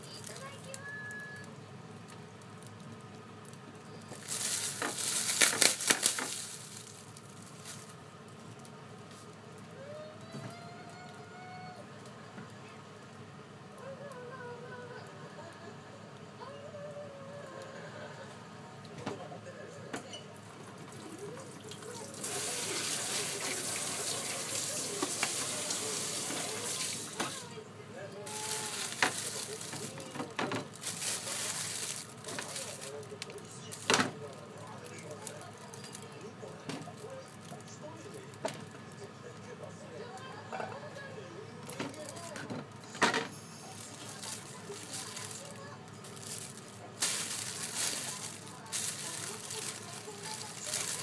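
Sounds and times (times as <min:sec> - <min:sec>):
food rustling on cutting board: 0:04.1 - 0:08.0, 0:28.3 - 0:33.1, 0:43.6 - 0:51.0
water running into sink: 0:21.6 - 0:27.4.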